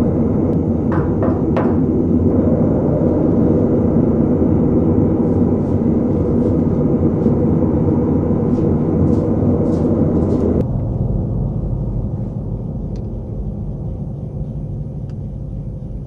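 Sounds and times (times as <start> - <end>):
low rumbling suspense drone: 0.0 - 16.0.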